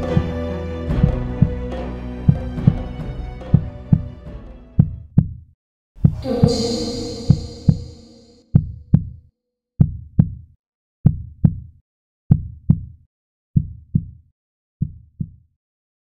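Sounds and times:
heartbeat thumps: 0.9s - 1.6s, 2.2s - 4.2s, 4.8s - 5.4s, 6.0s - 9.2s, 9.8s - 10.4s, 11.0s - 11.7s, 12.3s - 12.9s, 13.6s - 14.2s, 14.8s - 15.4s
held music note: 6.2s - 8.4s.

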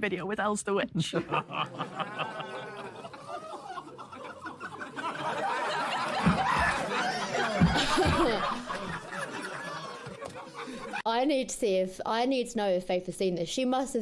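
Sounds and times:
audience laughing: 1.2s - 11.1s.

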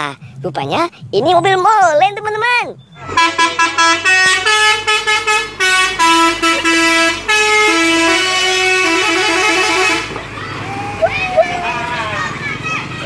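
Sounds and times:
multi-tone musical air horn: 3.0s - 10.1s.

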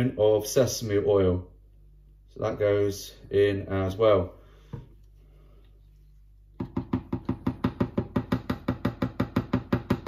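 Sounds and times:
utensil knocking in plastic tub: 6.6s - 10.0s.

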